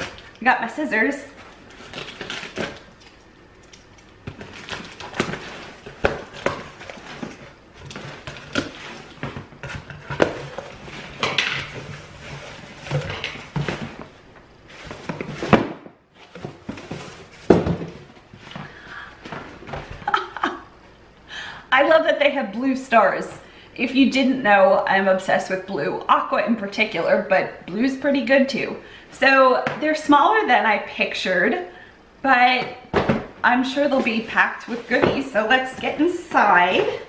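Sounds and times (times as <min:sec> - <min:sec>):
cardboard scraping and rustling: 0:04.2 - 0:20.0, 0:33.0 - 0:36.0.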